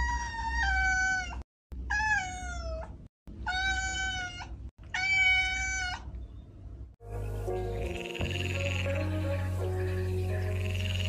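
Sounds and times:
cat meowing: 0:00.0 - 0:06.1.

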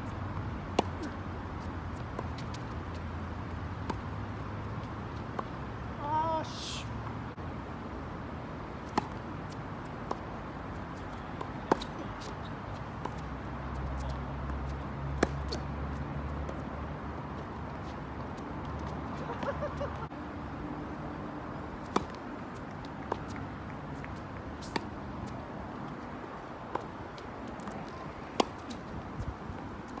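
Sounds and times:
tennis ball hit by rackets: 0:08.9 - 0:09.2, 0:11.5 - 0:12.0, 0:15.2 - 0:15.6, 0:21.8 - 0:22.2, 0:23.0 - 0:25.0, 0:27.6 - 0:28.9.

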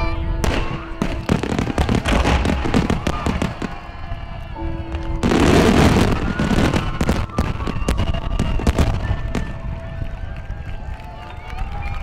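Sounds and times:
loud firework bang: 0:00.4 - 0:03.8
fireworks cracking and popping: 0:00.4 - 0:10.9.

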